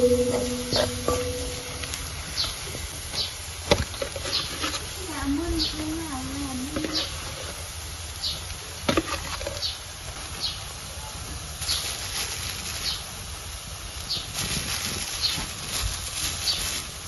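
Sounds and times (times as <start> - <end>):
metal spoons scraping wok: 0.0 - 2.0
garlic frying in oil: 0.0 - 17.0.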